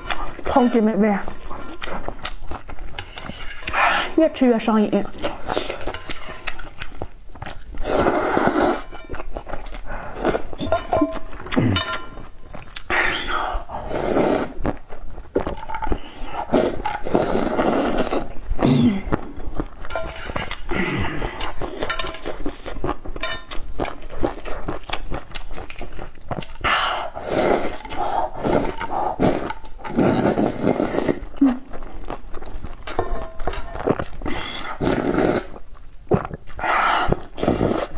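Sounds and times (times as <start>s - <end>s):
slurping and chewing soup: 0.0s - 37.9s
spoon clicking on metal bowl: 23.2s - 23.6s.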